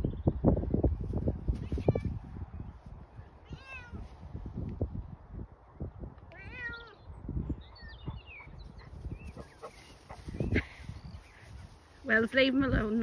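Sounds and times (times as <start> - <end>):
cat meowing: 3.4 - 4.0, 6.3 - 7.0.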